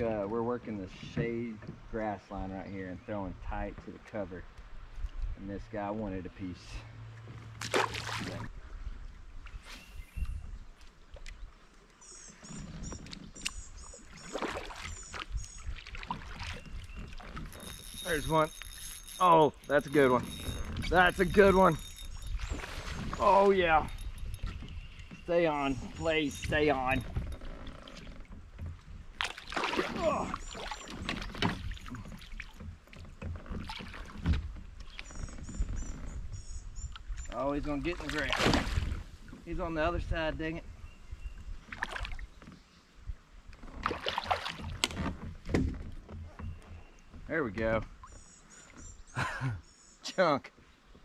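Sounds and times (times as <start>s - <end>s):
knocks and rustles on kayak: 1.0s - 2.6s, 12.4s - 40.1s, 43.4s - 49.0s
water lapping: 6.3s - 39.8s, 40.6s - 49.2s
bird chirping: 12.0s - 15.8s, 16.4s - 27.2s, 48.0s - 50.2s.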